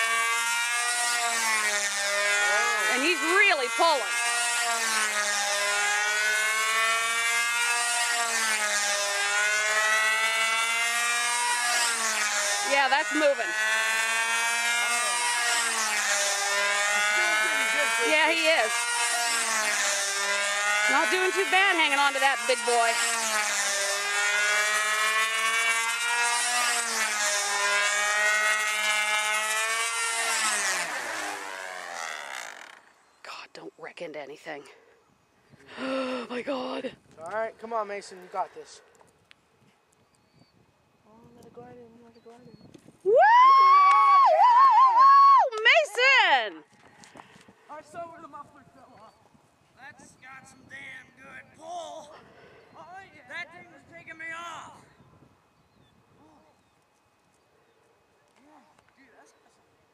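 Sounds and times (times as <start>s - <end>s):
model airplane engine: 0.0s - 33.2s, 45.6s - 59.2s.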